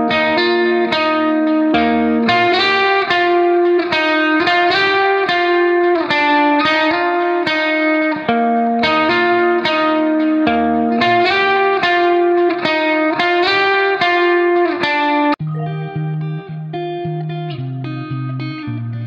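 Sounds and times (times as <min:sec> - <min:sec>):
guitar melody: 0:00.0 - 0:19.0.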